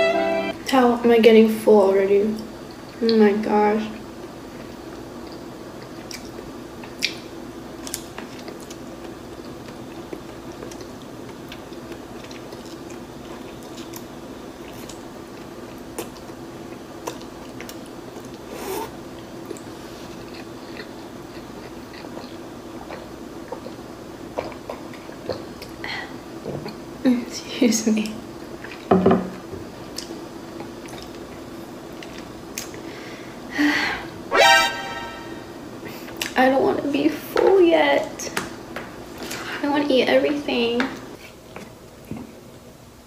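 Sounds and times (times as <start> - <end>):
chewing noodles: 7.8 - 25.8, 29.9 - 32.8.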